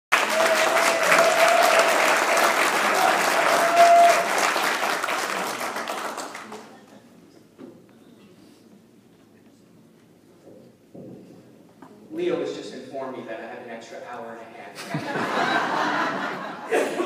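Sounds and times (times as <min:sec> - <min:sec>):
audience applauding: 0:00.1 - 0:06.8.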